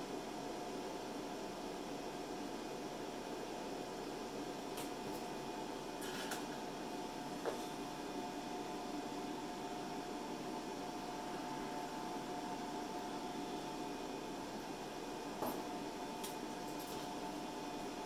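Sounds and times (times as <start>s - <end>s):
faint steady whine: 0.0s - 18.0s
machine hum and hiss: 0.0s - 18.0s.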